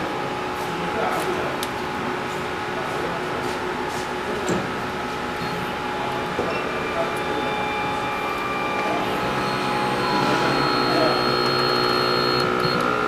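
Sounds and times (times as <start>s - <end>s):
machine hum: 4.2s - 13.0s
faint steady tones: 5.4s - 12.8s.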